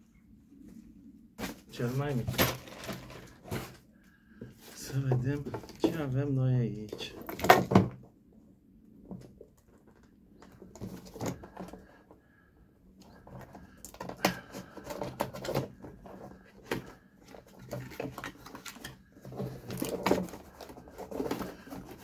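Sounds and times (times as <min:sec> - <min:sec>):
parcel packaging rustling: 0:13.1 - 0:22.0.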